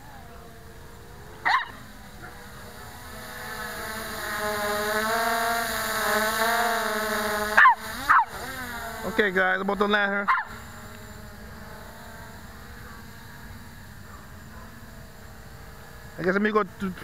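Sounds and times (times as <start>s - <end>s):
quadcopter propellers whining: 0.0s - 17.0s
dog barking: 1.4s - 1.8s, 7.6s - 8.3s, 10.3s - 10.5s, 14.1s - 14.8s.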